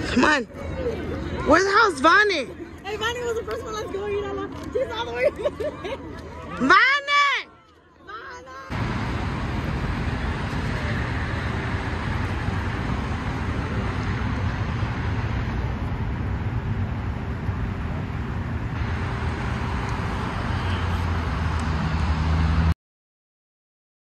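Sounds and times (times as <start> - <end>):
city traffic noise: 0.0 - 22.8
vehicle engine low hum: 8.7 - 22.8.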